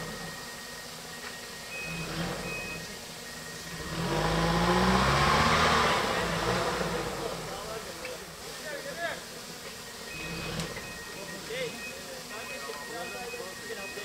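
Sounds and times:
pickup engine revving: 0.0s - 0.6s, 1.7s - 8.6s, 9.2s - 11.5s.

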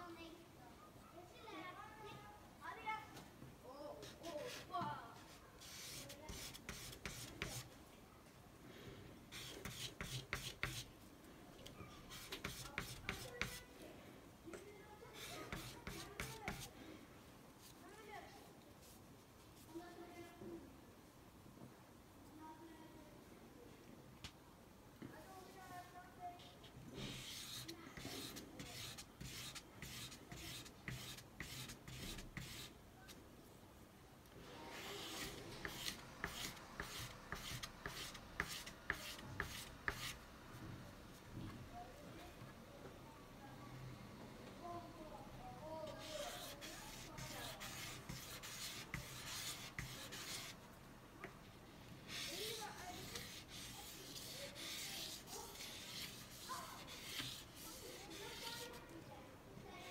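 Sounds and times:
knife scraping on sandpaper: 5.6s - 7.7s, 9.3s - 10.9s, 12.1s - 13.6s, 15.2s - 16.7s, 27.0s - 32.7s, 34.7s - 40.2s, 45.9s - 50.6s, 52.1s - 58.8s
knife blade scraping on sandpaper: 45.9s - 50.6s.

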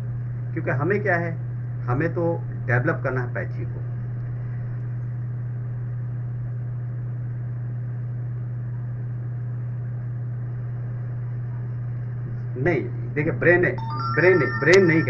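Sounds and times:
steady low hum: 0.0s - 15.0s
lecture speech: 12.6s - 15.0s.

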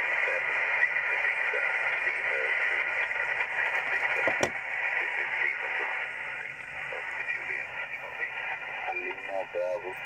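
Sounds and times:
radio static hiss: 0.0s - 10.0s
sharp radio crackle: 0.0s - 10.0s.

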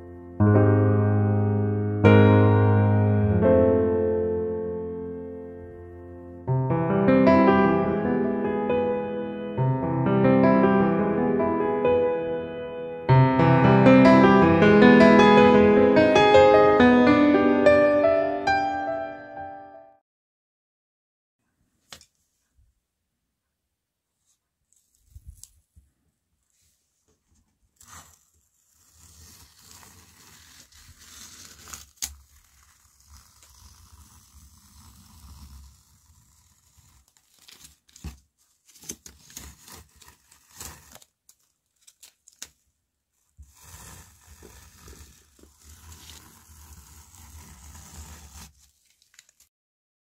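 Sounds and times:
tearing and crinkling: 24.7s - 25.8s, 27.7s - 49.5s.

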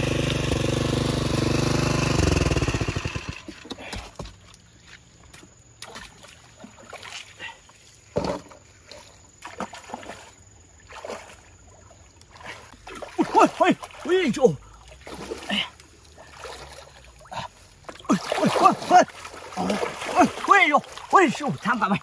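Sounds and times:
small petrol engine running: 0.0s - 3.7s
water splashing and sloshing: 2.6s - 22.0s.

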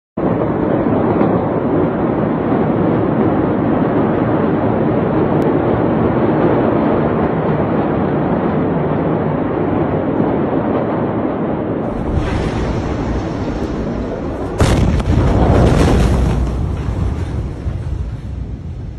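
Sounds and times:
loud steady rumbling: 11.0s - 18.9s.

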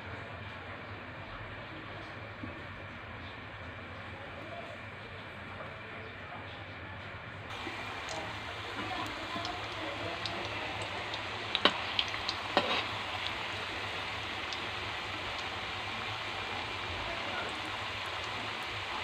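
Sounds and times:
oil sizzling: 7.5s - 19.0s
spatula knocking against wok: 11.6s - 12.9s.

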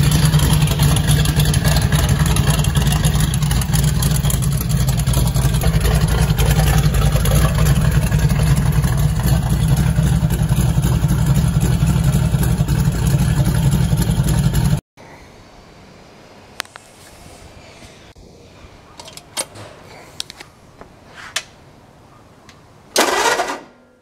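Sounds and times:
car engine idling: 0.0s - 14.8s.

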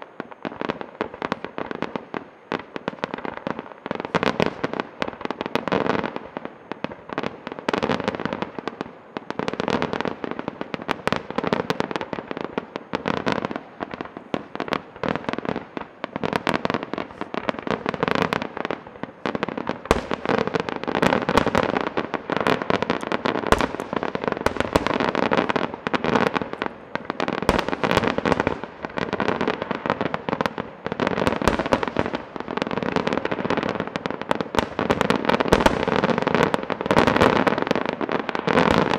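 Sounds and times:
fireworks bursts and bangs: 0.0s - 38.9s.

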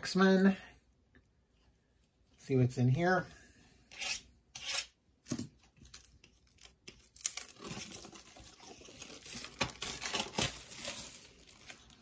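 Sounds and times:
plastic wrapping crinkling: 5.8s - 12.0s.

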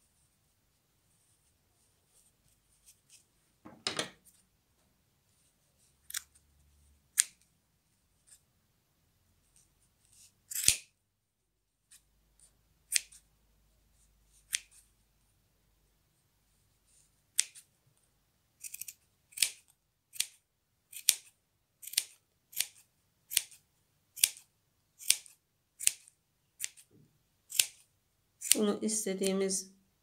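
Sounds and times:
scissors snipping yarn: 6.0s - 6.4s, 7.1s - 7.5s, 9.6s - 10.9s, 11.9s - 13.2s, 14.3s - 14.9s, 17.3s - 17.7s, 18.6s - 23.6s, 24.2s - 26.9s, 27.5s - 29.4s.

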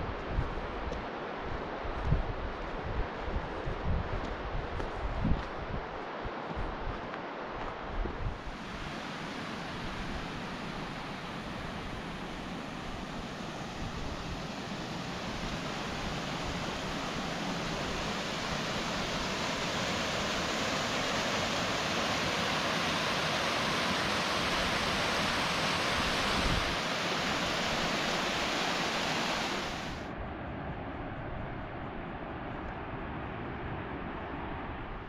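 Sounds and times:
rushing water: 6.0s - 30.1s.

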